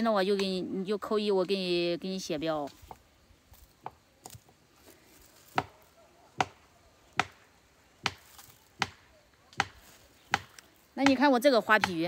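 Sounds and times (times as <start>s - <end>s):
sharp chopping knocks: 7.2s - 7.4s, 8.0s - 9.0s, 9.6s - 11.2s.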